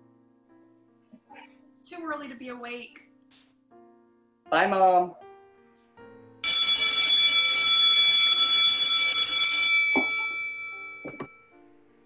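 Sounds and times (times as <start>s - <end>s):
electric school bell ringing: 6.4s - 11.2s.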